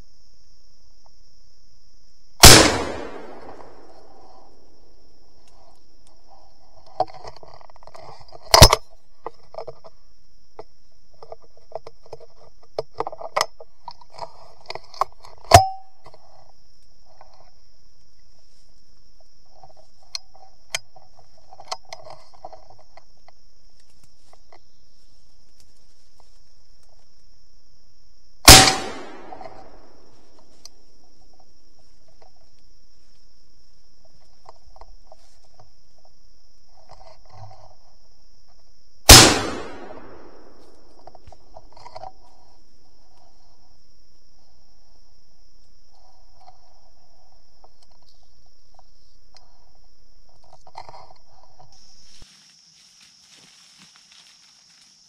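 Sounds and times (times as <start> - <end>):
gunshots echoing: 2.4 - 4.1, 28.5 - 29.8, 39.1 - 40.6
gun handling clicks and rustling: 5.5 - 10.0, 19.6 - 24.6, 28.5 - 31.4.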